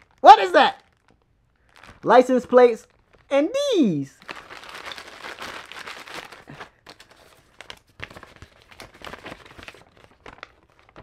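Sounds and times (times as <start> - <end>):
plastic bag crinkling and tearing: 0.0 - 3.3, 4.1 - 11.0
package crackles and clicks: 0.8 - 2.0, 4.2 - 11.0.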